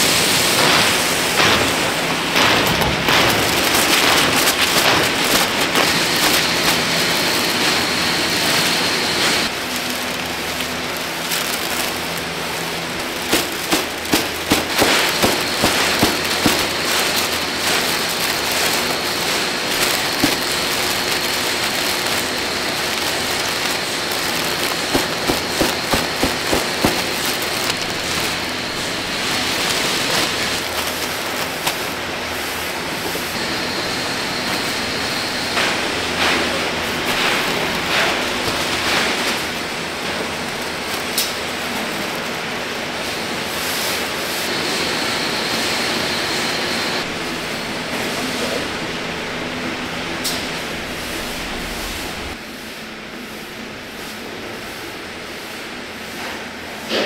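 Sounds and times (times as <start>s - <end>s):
machine hum: 0.0s - 52.4s
factory hiss: 0.0s - 57.0s
plastic sacks crinkling: 0.5s - 44.3s.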